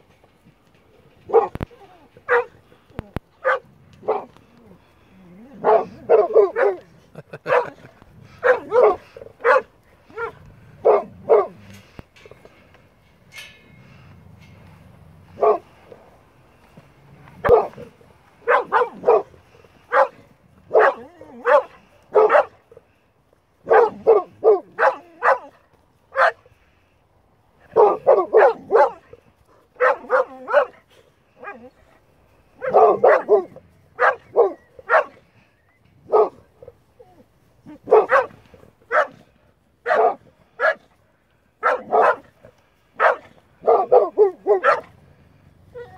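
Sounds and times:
dogs barking: 1.2s - 2.6s, 3.4s - 4.4s, 5.5s - 11.7s, 15.3s - 15.8s, 17.4s - 22.8s, 23.6s - 26.5s, 27.6s - 30.8s, 31.4s - 31.8s, 32.6s - 35.2s, 36.0s - 36.8s, 37.7s - 40.9s, 41.6s - 42.4s, 43.0s - 45.0s.

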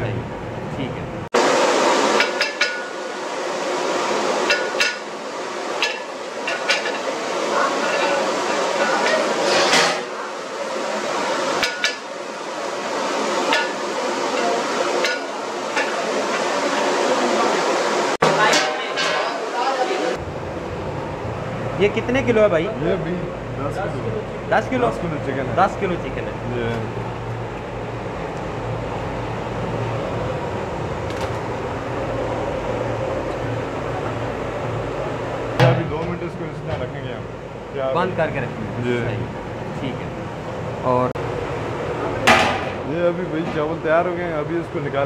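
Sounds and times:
pot boiling: 1.4s - 21.8s.

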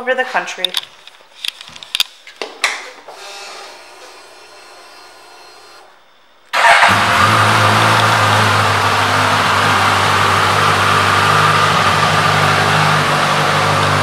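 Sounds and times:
fuel pump whirring: 6.6s - 14.0s.

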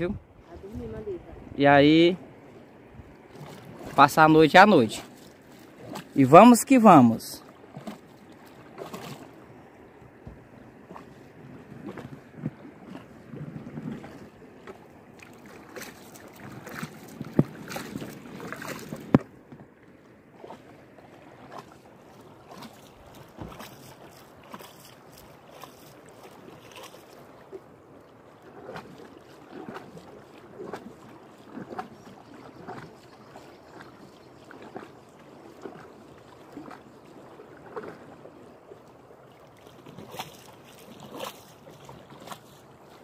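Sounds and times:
paddle splashes: 0.0s - 43.0s
water lapping: 0.0s - 43.0s.

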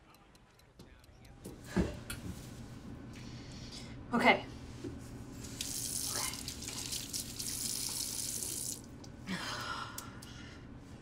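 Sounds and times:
faucet running into sink: 5.6s - 8.9s.

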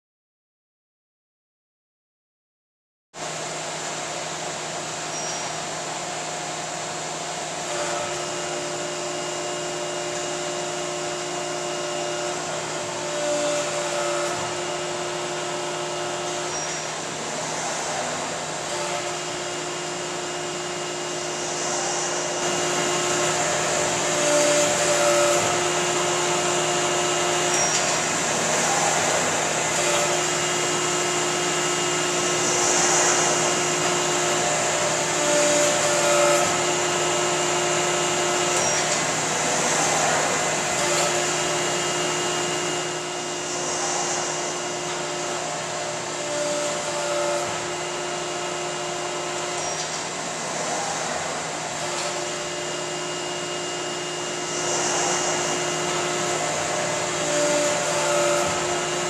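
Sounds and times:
hydraulic press whirring hum: 3.2s - 59.0s.

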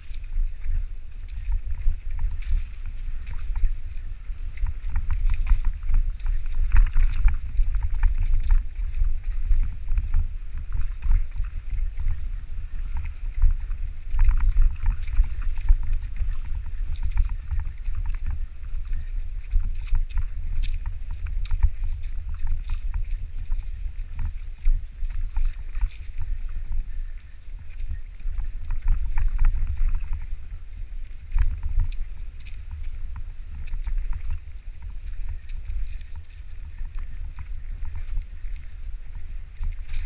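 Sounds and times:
bike clicking and rattling over rocks: 0.0s - 26.8s
wind buffeting microphone: 0.0s - 40.0s.

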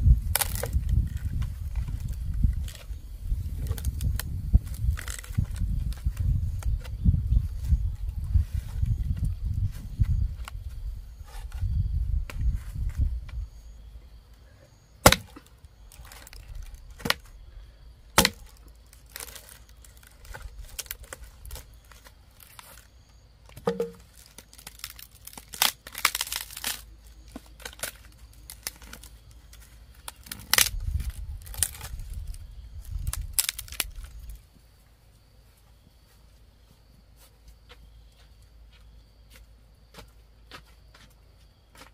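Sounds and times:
wood cracking and splintering: 0.2s - 6.3s, 15.0s - 17.4s, 18.2s - 22.9s, 23.5s - 34.4s
hatchet striking wood: 15.0s - 15.4s, 18.2s - 18.5s, 23.6s - 24.0s.

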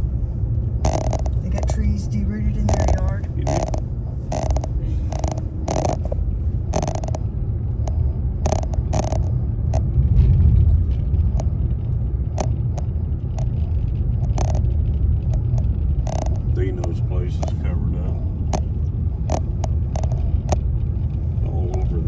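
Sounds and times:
vehicle road and engine rumble: 0.0s - 22.0s.

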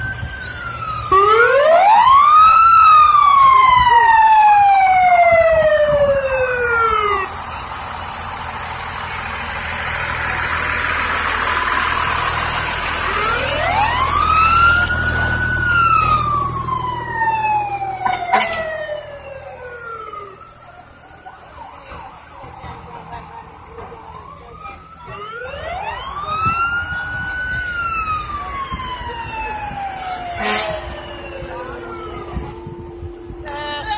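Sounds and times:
fire engine siren: 0.0s - 33.9s
truck engine passing: 0.0s - 33.9s.

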